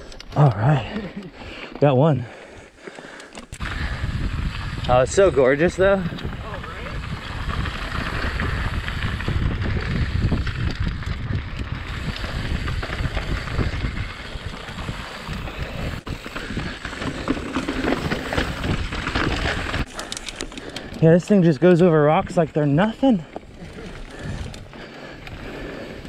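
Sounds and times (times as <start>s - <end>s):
bike rumbling and rattling on rocks: 2.9s - 26.0s
wind buffeting microphone: 3.5s - 21.0s, 21.8s - 26.0s.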